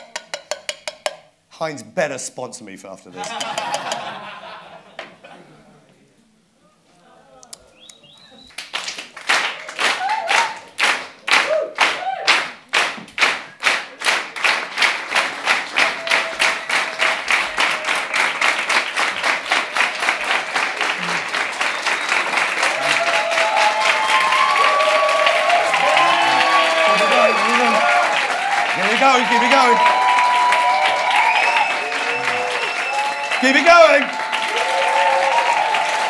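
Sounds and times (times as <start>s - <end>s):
audience clapping in time: 8.4s - 36.0s.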